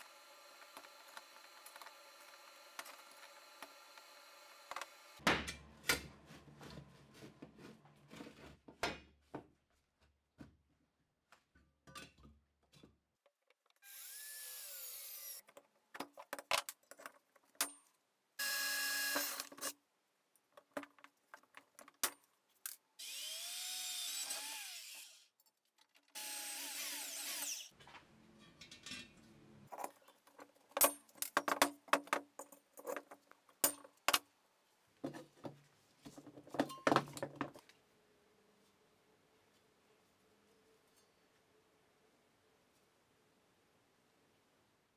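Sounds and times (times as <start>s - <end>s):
electric drill boring into steel: 0.0s - 5.2s, 13.8s - 15.4s, 18.4s - 19.5s, 23.0s - 25.3s, 26.2s - 27.7s.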